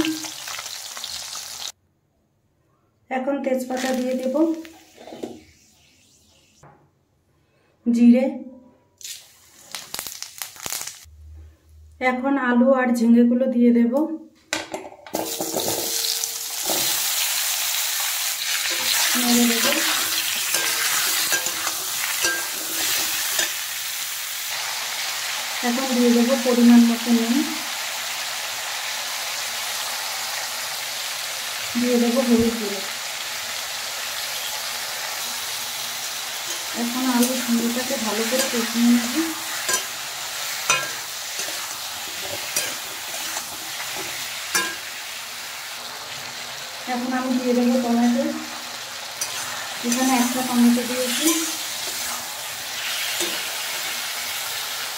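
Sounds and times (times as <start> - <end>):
vegetables sizzling in hot oil: 0.0 - 1.8, 3.6 - 6.0, 9.0 - 11.1, 15.1 - 54.9
metal spatula scraping pan: 18.5 - 23.6, 36.5 - 45.0, 49.2 - 53.9.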